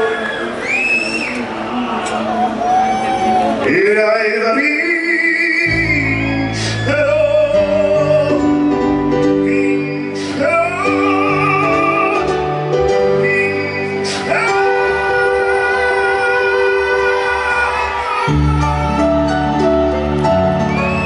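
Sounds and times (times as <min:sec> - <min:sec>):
live band music: 0:05.7 - 0:21.0.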